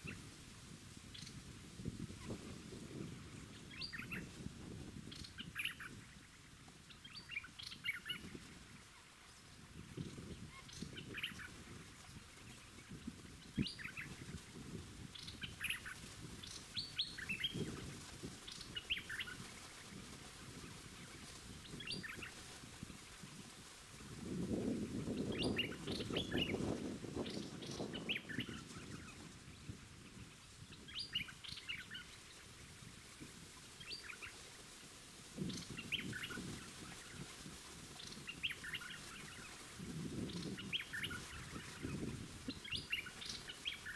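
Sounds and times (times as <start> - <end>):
songbirds chirping: 5.0 - 43.9.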